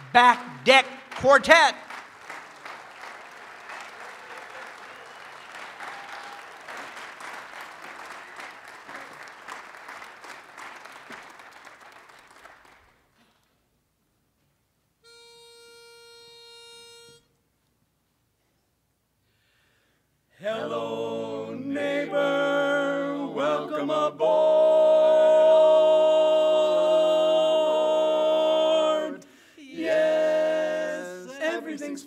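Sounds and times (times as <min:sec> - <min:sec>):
audience applause: 0:00.0 - 0:13.1
pitch pipe note: 0:15.0 - 0:17.2.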